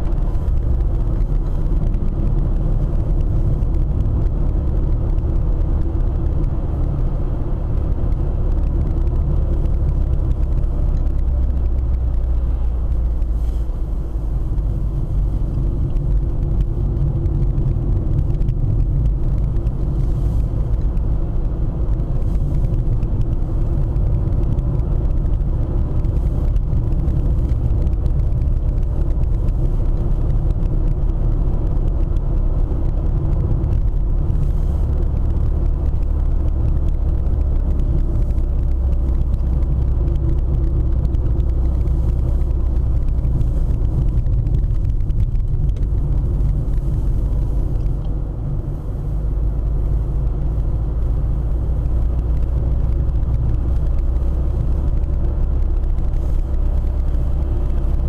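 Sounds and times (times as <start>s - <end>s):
car engine and tyre rumble: 0.0s - 58.0s.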